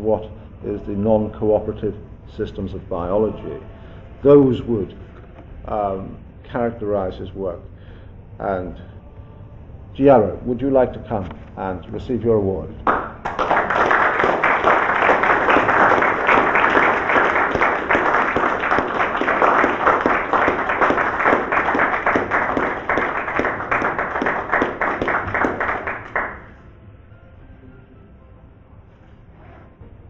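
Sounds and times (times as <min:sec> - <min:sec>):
audience applauding: 0:12.9 - 0:26.6.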